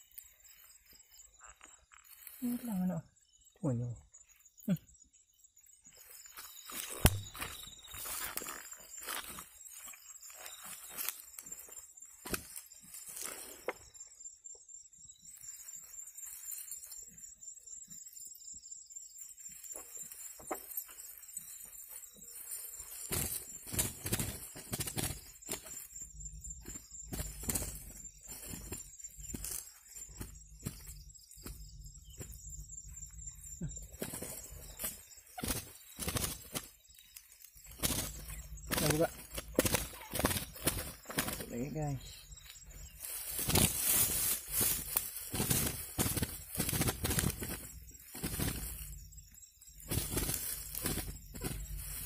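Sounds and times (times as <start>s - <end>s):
night insects chorus: 0.0s - 52.0s
quail wings fluttering: 22.6s - 26.0s, 26.6s - 31.6s, 34.0s - 36.8s, 37.5s - 41.6s, 42.9s - 49.0s, 49.7s - 52.0s
net and dry grass rustling: 34.1s - 41.5s, 42.4s - 52.0s
nylon net and grass rustling: 42.9s - 49.0s, 49.8s - 52.0s.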